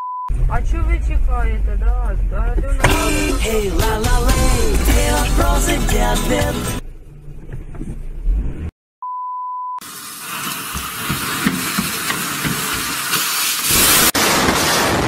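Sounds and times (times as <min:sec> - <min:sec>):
short steady beep: 0:00.0 - 0:00.3, 0:09.0 - 0:09.8
fireworks hissing: 0:02.8 - 0:05.3, 0:09.8 - 0:15.0
music: 0:02.8 - 0:06.8.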